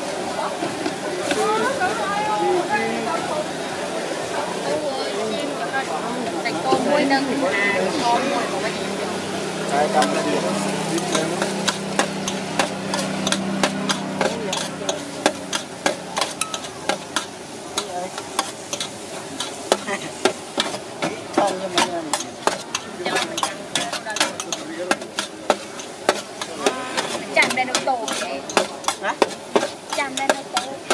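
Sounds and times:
food sizzling: 0.0s - 30.9s
metal spatulas scraping a wok: 9.7s - 30.9s.

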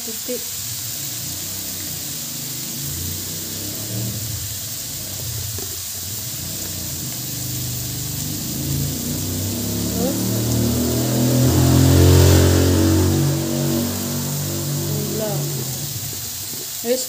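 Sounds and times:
food sizzling in a wok: 0.0s - 17.0s
three-wheeled vehicle engine running: 0.0s - 17.0s.

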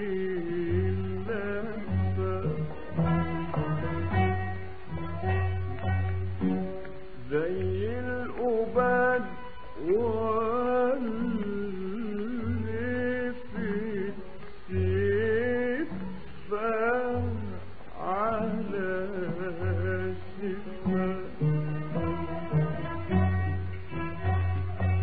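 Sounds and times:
plucked strings ensemble: 0.0s - 25.0s
man singing melismatic phrase: 7.2s - 23.2s.

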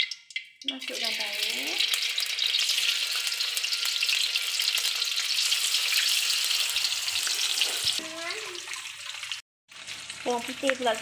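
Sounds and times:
tofu sizzling in hot oil: 0.6s - 11.0s.

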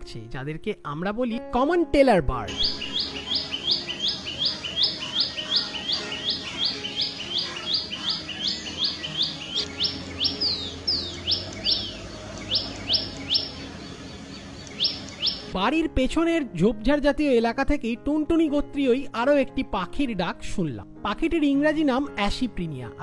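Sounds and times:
bird calling sharp high notes: 2.5s - 15.5s.

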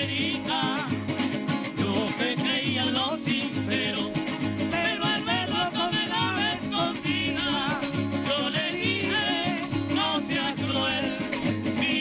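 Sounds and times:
strummed small guitars: 0.0s - 12.0s
folk string ensemble playing: 3.7s - 12.0s.

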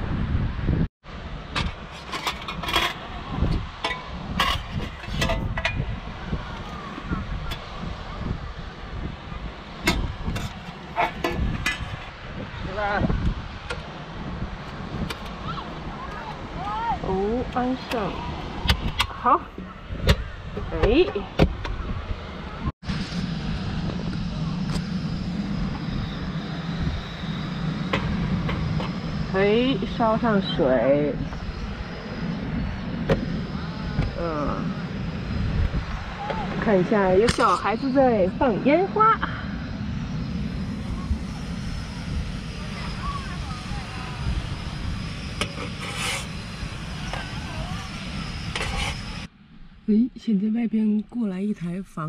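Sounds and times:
gas stove burner rushing: 42.1s - 49.3s.

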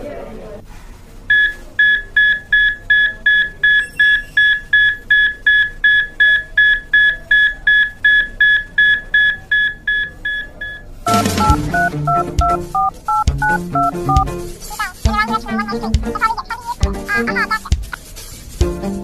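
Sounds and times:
electronic alarm beeping: 1.3s - 14.3s.

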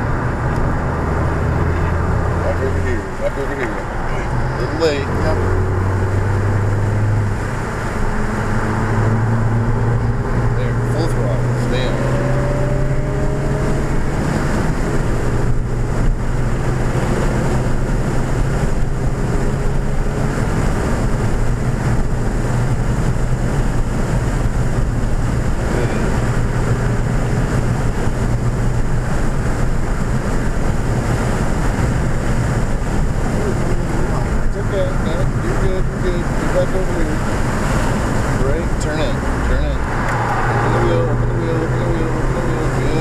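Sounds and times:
car engine drone: 0.0s - 43.0s
wind and road noise: 0.0s - 43.0s.

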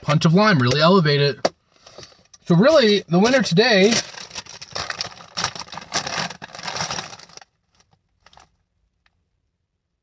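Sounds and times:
plastic bag crinkling: 2.7s - 8.6s.

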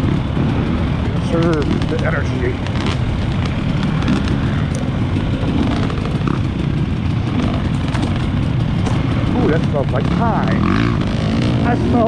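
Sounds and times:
dirt bike engine running: 0.0s - 12.0s
clicks and rattles: 7.4s - 9.1s.

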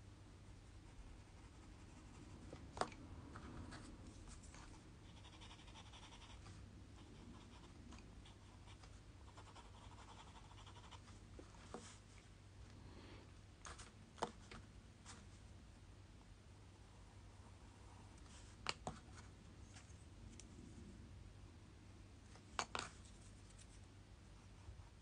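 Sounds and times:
pencil scratching on paper: 3.7s - 12.0s.

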